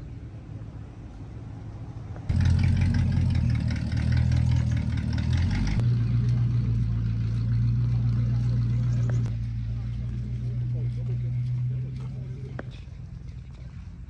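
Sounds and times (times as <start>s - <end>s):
car engine running loudly: 2.1s - 12.8s.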